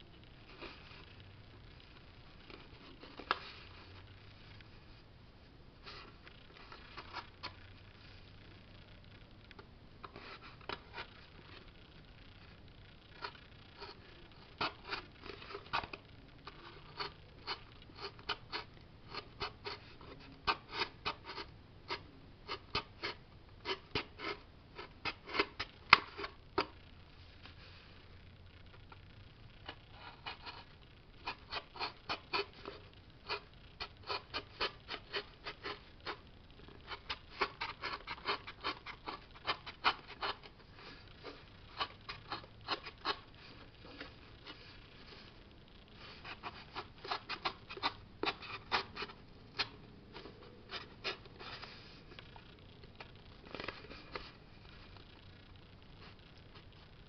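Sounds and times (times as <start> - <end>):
knife cutting cardboard: 46.2 - 51.7.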